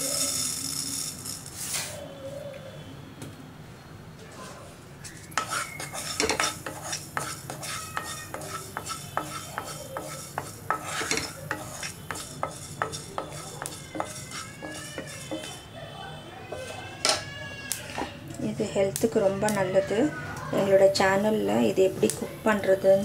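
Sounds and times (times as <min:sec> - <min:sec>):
spatula scraping seeds in a pan: 0:00.0 - 0:02.0, 0:04.4 - 0:15.7, 0:16.5 - 0:16.9.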